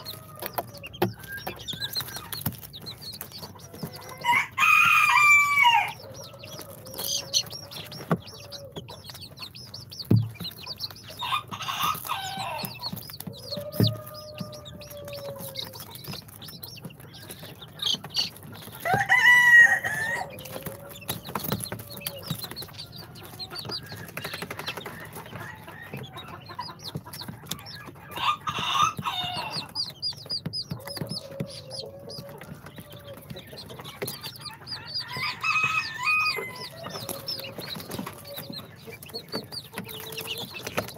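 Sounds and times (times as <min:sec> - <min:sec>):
chicken calls: 0:00.0 - 0:40.9
chicks peeping: 0:00.0 - 0:40.9.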